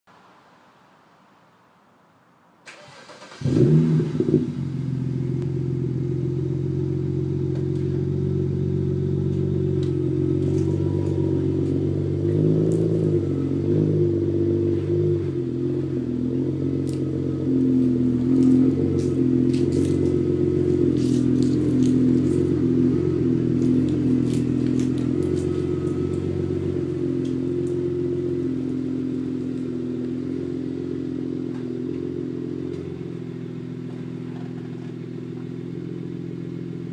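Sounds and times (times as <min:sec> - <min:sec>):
car engine starting and idling: 0:02.6 - 0:36.9.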